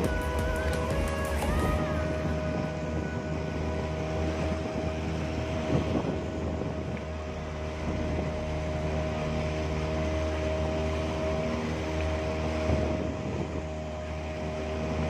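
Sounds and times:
outboard motor running: 0.0 - 15.0
rushing wind and water: 0.0 - 15.0.

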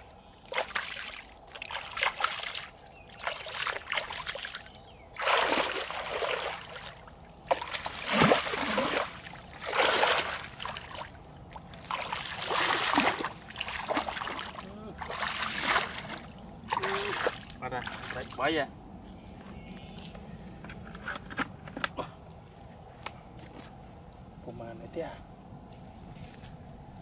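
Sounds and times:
feet splashing in muddy puddle: 0.4 - 18.4.

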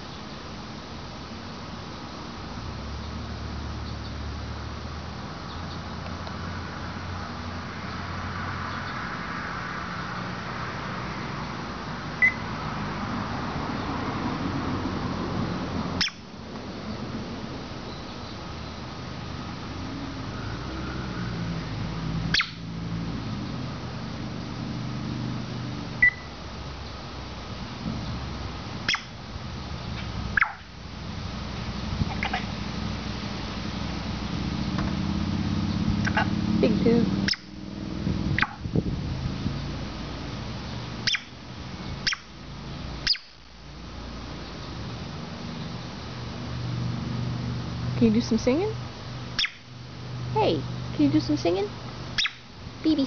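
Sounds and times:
even hiss: 0.0 - 53.0
low mechanical hum: 0.0 - 53.0
parrot whistled chirps: 12.2 - 12.4, 22.3 - 22.6, 26.0 - 26.3, 41.0 - 41.3, 43.1 - 43.3, 49.4 - 49.6, 52.2 - 52.4
faint high chirps: 26.0 - 27.0.

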